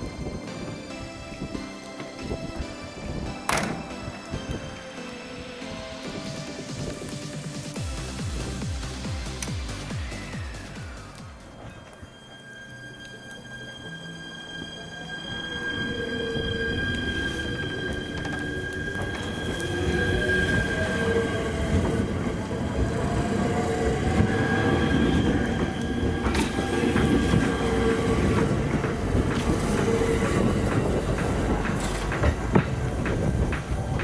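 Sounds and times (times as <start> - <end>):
train wheel squeal: 9.8 - 34.0
wheels clacking over rail joints: 16.7 - 34.0.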